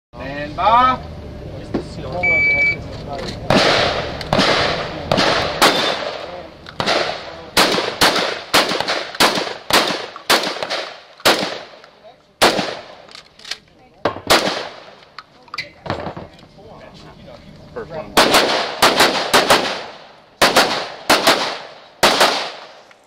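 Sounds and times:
gunshots: 0:03.5 - 0:11.8, 0:12.4 - 0:13.1, 0:14.1 - 0:15.0, 0:18.2 - 0:22.9.

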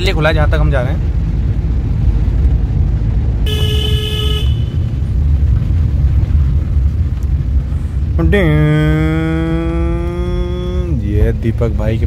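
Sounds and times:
car engine and tyres rumbling: 0:00.0 - 0:12.0
car horn toot: 0:03.4 - 0:05.0.

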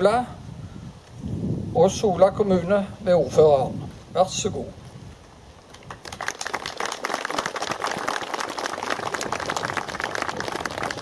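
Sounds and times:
audience applauding: 0:05.7 - 0:11.0.

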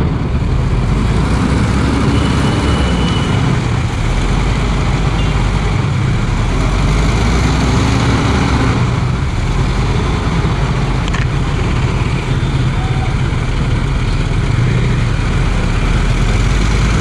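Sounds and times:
bus diesel engine: 0:00.0 - 0:17.0
motorcycle engine running: 0:08.8 - 0:17.0.

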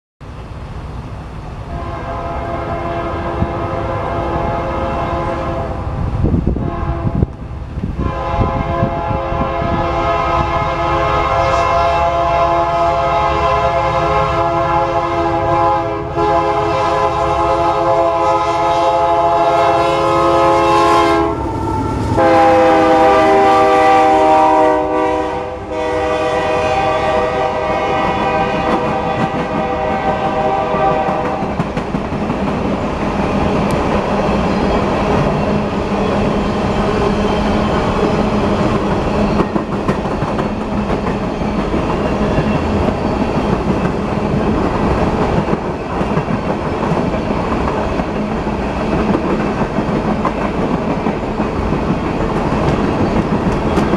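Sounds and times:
diesel locomotive rumble: 0:00.2 - 0:53.9
locomotive air horn blasts: 0:01.7 - 0:05.8, 0:06.6 - 0:07.3, 0:08.0 - 0:31.5.

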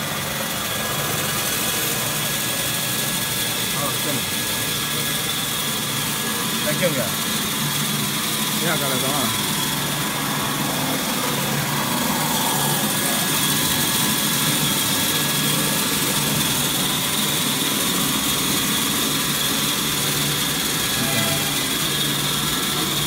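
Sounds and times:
paper cutting machine whine: 0:00.0 - 0:23.0
low machine hum: 0:09.3 - 0:23.0.

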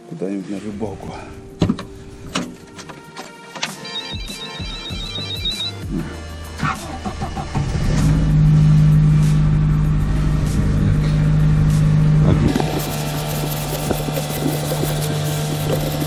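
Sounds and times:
car engine starting and idling: 0:00.6 - 0:04.1, 0:05.0 - 0:16.0.

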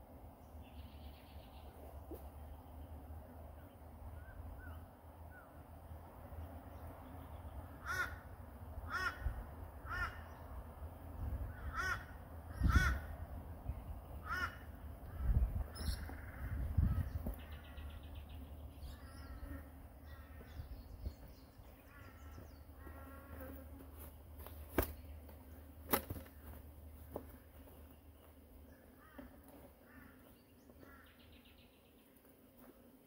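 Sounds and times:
small birds chirping and trilling: 0:00.3 - 0:08.7, 0:12.5 - 0:32.5
crow cawing: 0:07.8 - 0:10.3, 0:11.5 - 0:13.1, 0:14.2 - 0:15.3, 0:16.0 - 0:17.0, 0:29.0 - 0:30.2, 0:30.8 - 0:31.1.

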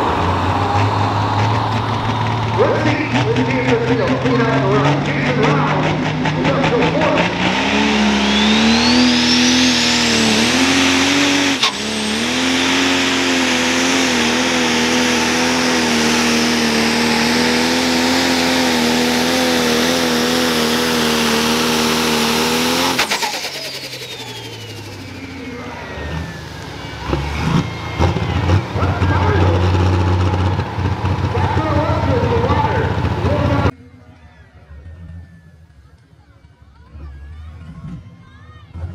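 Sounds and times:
tractor engine running flat out: 0:00.0 - 0:38.9
high whistle: 0:08.0 - 0:10.0, 0:23.2 - 0:29.0.

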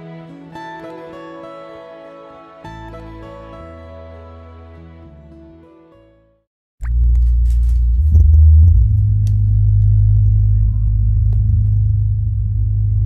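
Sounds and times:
subwoofer playing deep bass: 0:06.8 - 0:13.0.

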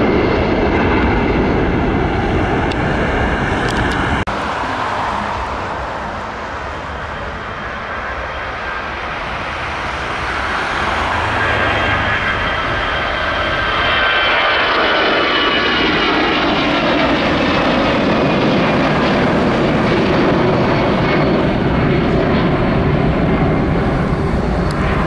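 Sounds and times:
high engine whine: 0:00.0 - 0:25.0
jet engine roar: 0:00.0 - 0:25.0.

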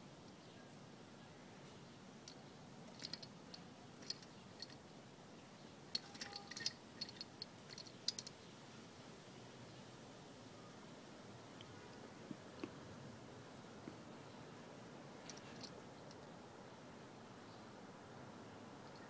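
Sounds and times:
wooden toy clicking and tapping: 0:06.0 - 0:08.3.

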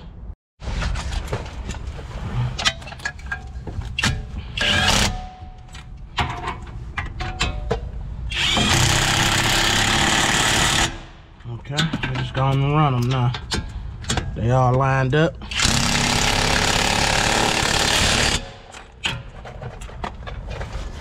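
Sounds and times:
metal clanks of tools: 0:02.5 - 0:08.0, 0:11.4 - 0:14.9.

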